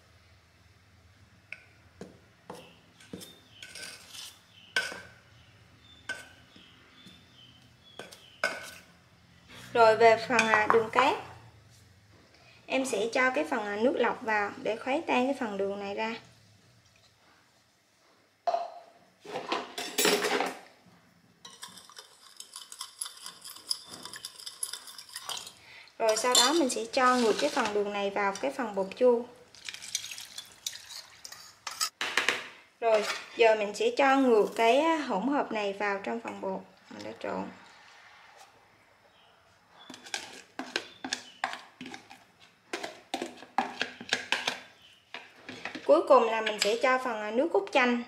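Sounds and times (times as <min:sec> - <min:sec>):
spoon scraping through flour: 0:02.5 - 0:05.0, 0:08.0 - 0:09.8, 0:21.5 - 0:29.0, 0:39.7 - 0:45.9
spoon clinking against glass bowl: 0:21.5 - 0:25.5.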